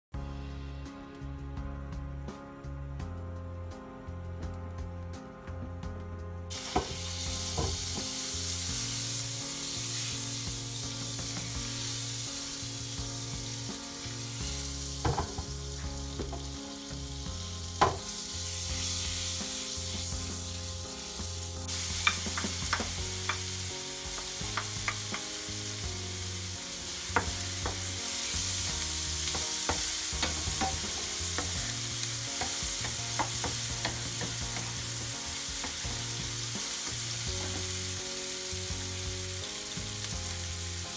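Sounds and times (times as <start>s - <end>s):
oil sizzling in frying pan: 6.5s - 40.9s
spatula tapping and scraping pan: 17.8s - 18.1s, 21.9s - 23.5s, 24.2s - 25.3s, 27.2s - 27.9s, 29.2s - 34.8s.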